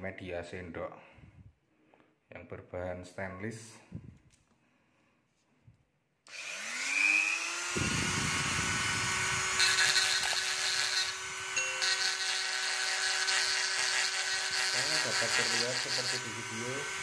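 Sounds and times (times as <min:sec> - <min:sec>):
rotary tool motor whine: 0:06.3 - 0:17.0
bit grinding against metal spoon: 0:09.5 - 0:16.9.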